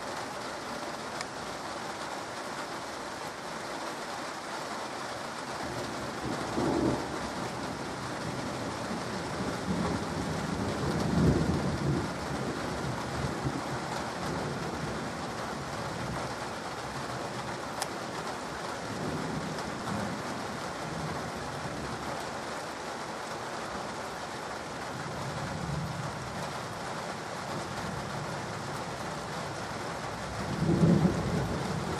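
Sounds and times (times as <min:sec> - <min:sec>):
steady rain: 0:00.0 - 0:31.9
thunder rumbling: 0:05.7 - 0:16.3, 0:25.0 - 0:31.9.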